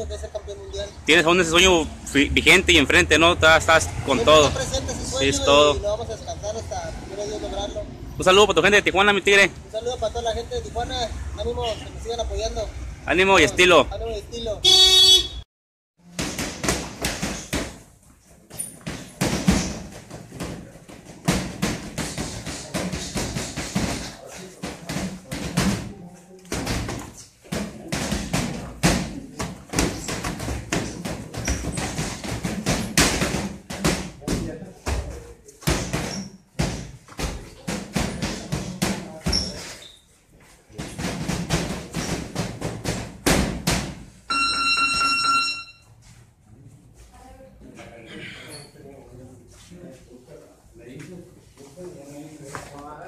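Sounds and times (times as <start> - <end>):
boxing gloves punching: 16.1 - 17.8, 18.8 - 25.9, 26.6 - 34.4, 40.8 - 44.0
buzzer tone: 44.3 - 45.9.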